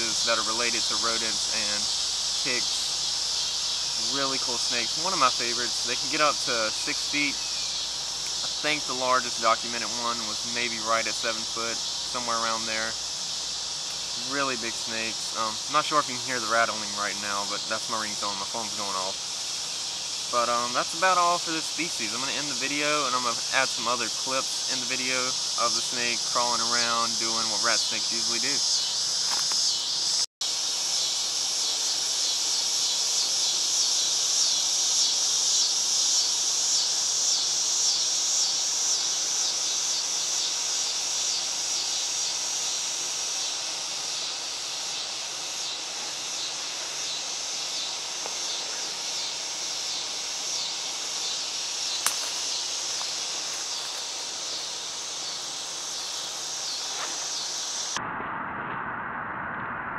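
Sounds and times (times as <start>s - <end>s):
insects buzzing chorus: 0.0s - 58.0s
sharp click: 52.0s - 52.5s.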